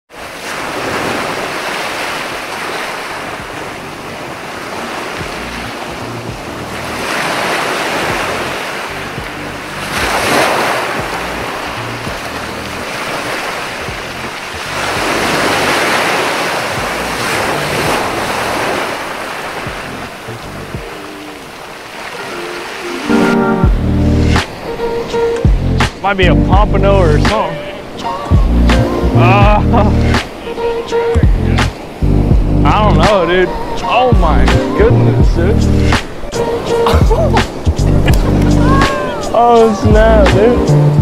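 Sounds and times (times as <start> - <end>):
ocean waves breaking on beach: 0.1 - 41.0
wind buffeting microphone: 0.6 - 21.8.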